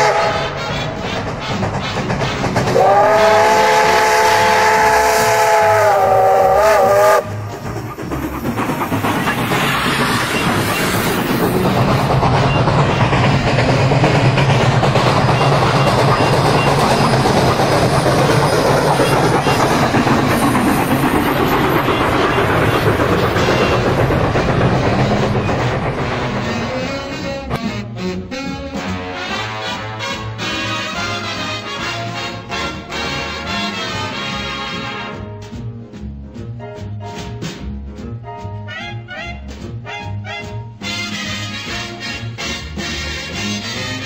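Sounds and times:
steam locomotive whistle: 0:00.0 - 0:01.2, 0:02.7 - 0:07.4, 0:26.4 - 0:35.2, 0:38.7 - 0:44.0
train running rumble: 0:00.0 - 0:44.0.

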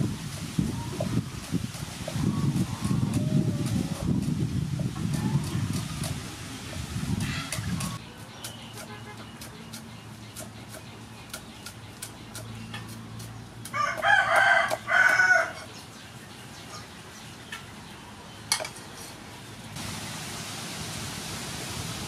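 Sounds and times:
rooster crowing: 0:13.7 - 0:15.7
steady hiss: 0:19.8 - 0:22.0.

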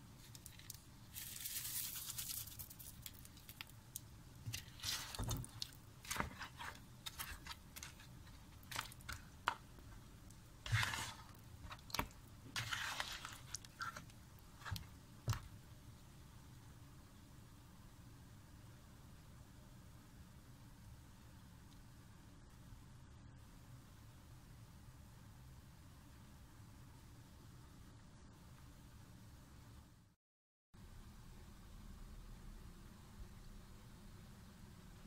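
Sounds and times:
spatula scraping thick curry: 0:04.4 - 0:09.6, 0:10.6 - 0:14.9.

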